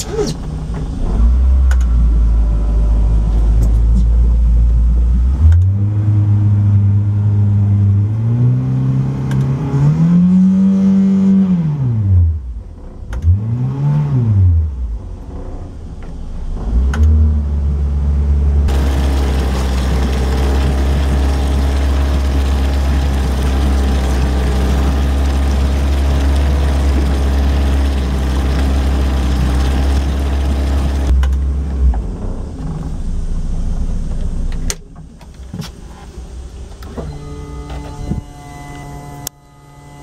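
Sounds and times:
wind: 0:00.0 - 0:40.0
outboard motor droning: 0:18.7 - 0:31.2
rushing water: 0:18.7 - 0:31.2.

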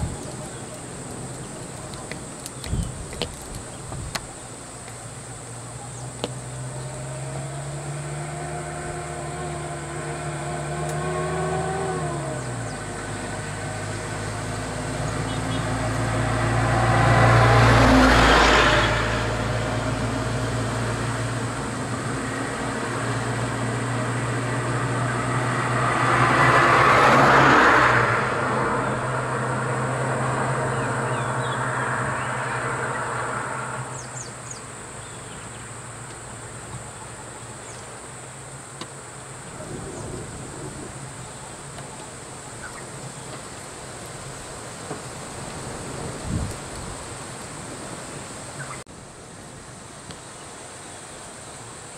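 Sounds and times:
vehicle passing by: 0:06.4 - 0:36.0.

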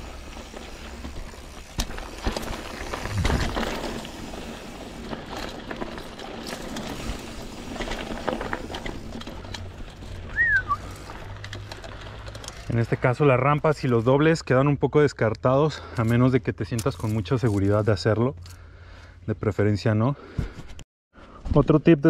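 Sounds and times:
bike rattling over bumps: 0:00.0 - 0:14.1
bike tyres crunching on dirt: 0:00.0 - 0:14.4.

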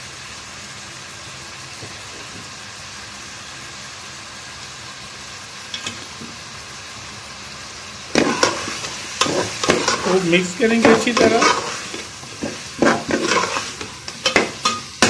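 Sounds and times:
food sizzling in oil: 0:00.0 - 0:15.0
spoon scraping a pot: 0:08.2 - 0:10.2, 0:10.8 - 0:14.9.

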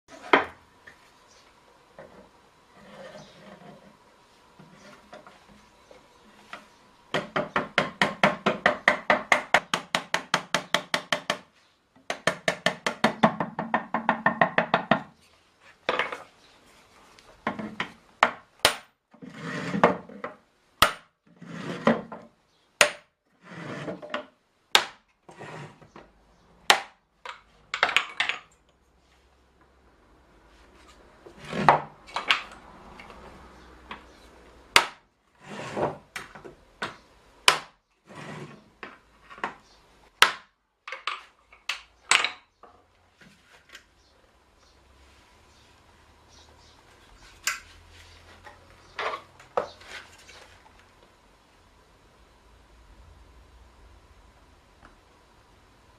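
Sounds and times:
hammer striking wooden hoop driver: 0:20.8 - 0:21.1, 0:34.7 - 0:35.0.

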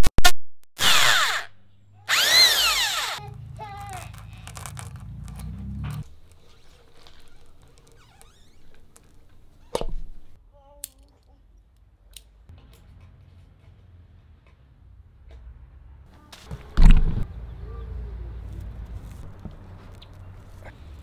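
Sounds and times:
power drill driving screw: 0:00.8 - 0:01.5, 0:02.1 - 0:03.2.

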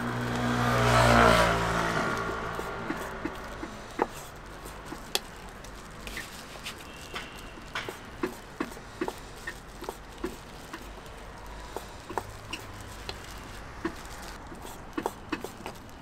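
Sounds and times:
light clicks and knocks: 0:07.1 - 0:14.0.

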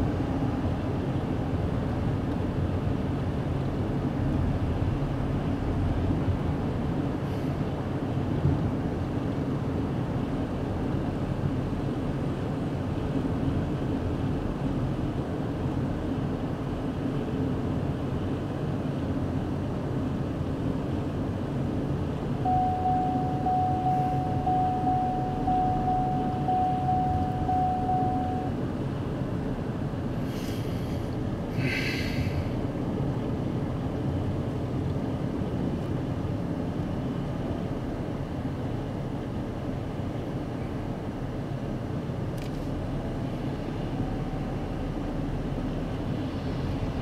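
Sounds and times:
car driving rumble inside cabin: 0:00.0 - 0:47.0
high electronic beep: 0:22.4 - 0:28.5.

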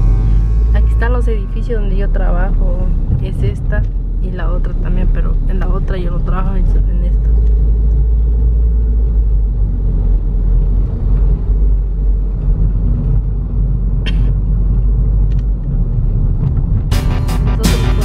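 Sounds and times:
music: 0:00.0 - 0:03.0, 0:16.9 - 0:18.0
car engine and tyres rumbling: 0:00.0 - 0:18.0.

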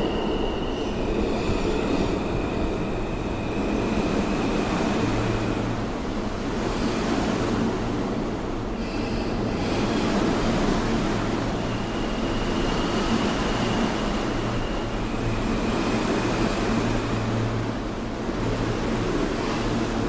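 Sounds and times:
subway train wheels rolling on rails: 0:00.0 - 0:20.0
faint high whine: 0:08.8 - 0:18.9.

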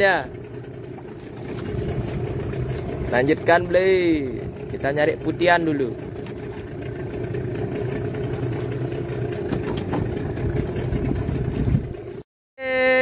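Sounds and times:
boat engine idling: 0:00.0 - 0:12.2.

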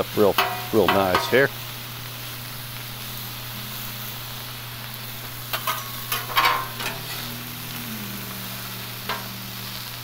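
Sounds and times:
steak sizzling on griddle: 0:00.0 - 0:10.0
metal spatulas scraping and clacking: 0:05.5 - 0:07.3.

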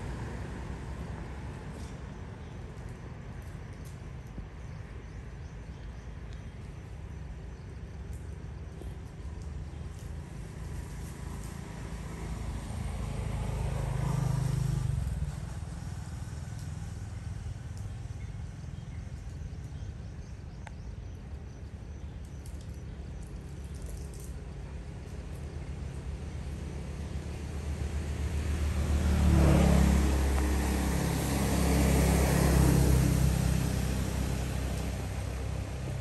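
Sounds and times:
vehicle passing: 0:10.8 - 0:17.6, 0:26.1 - 0:36.0.

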